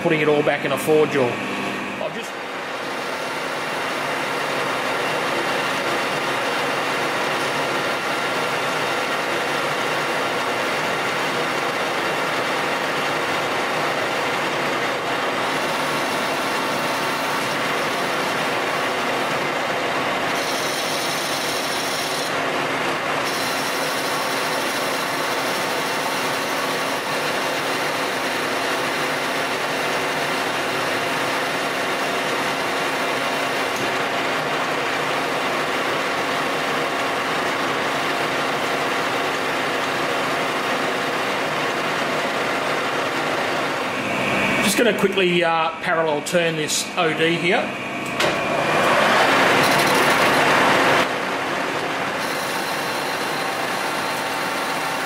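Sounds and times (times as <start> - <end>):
lathe hum: 0.0 - 45.0, 46.8 - 55.0
lathe tool cutting hiss: 20.3 - 22.4, 23.2 - 33.8, 52.2 - 55.0.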